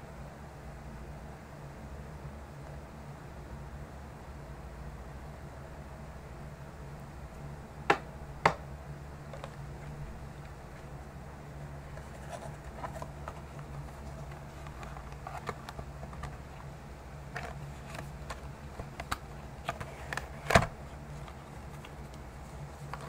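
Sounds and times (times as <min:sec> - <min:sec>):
card box clicks and taps: 0:07.9 - 0:08.6, 0:17.3 - 0:20.7.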